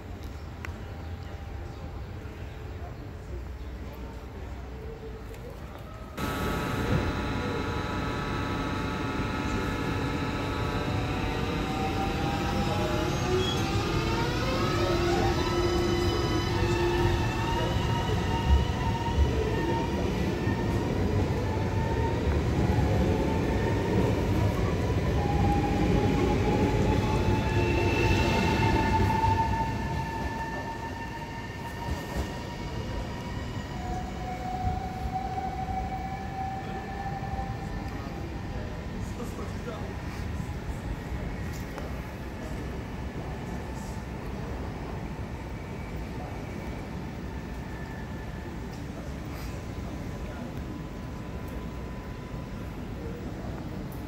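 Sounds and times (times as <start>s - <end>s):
second lower tone: 6.2s - 12.7s
traction motors whining: 6.2s - 15.4s
electric train starting off: 6.2s - 54.0s.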